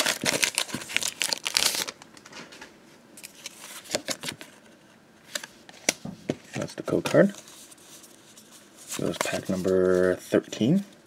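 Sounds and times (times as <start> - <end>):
foil wrapper crinkling and tearing: 0.0 - 2.0
cards rustling and clicking: 6.6 - 10.4.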